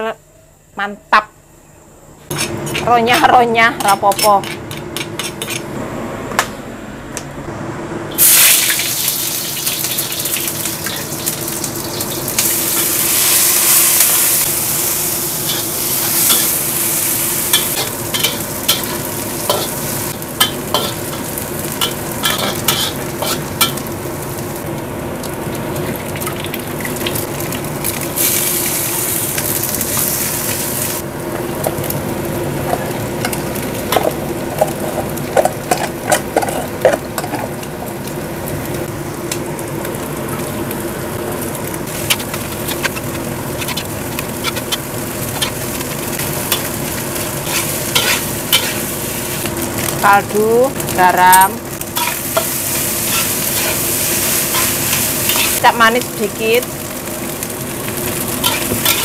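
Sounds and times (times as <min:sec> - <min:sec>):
food sizzling in a wok: 0:08.1 - 0:59.0
metal spatula scraping wok: 0:15.4 - 0:23.8, 0:42.0 - 0:45.6, 0:47.4 - 0:49.5, 0:52.0 - 0:55.6, 0:58.4 - 0:59.0.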